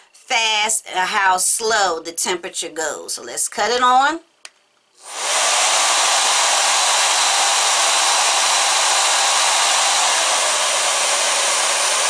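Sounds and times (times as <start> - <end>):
hair dryer running: 5.0 - 12.0.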